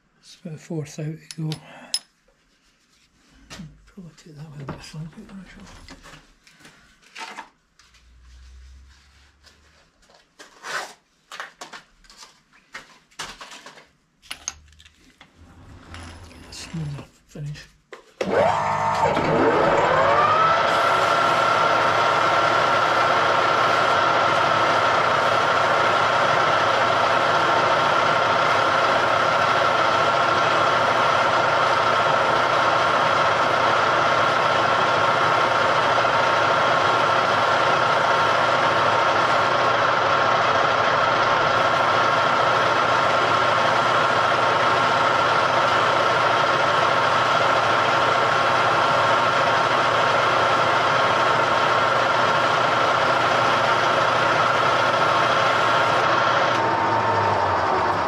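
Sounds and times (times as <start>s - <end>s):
machine tool motor whine: 15.2s - 17.0s, 18.2s - 58.0s.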